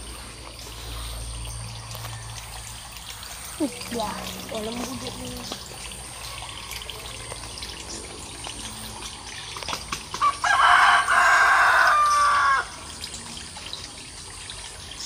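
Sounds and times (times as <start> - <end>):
rooster crowing: 10.2 - 12.8.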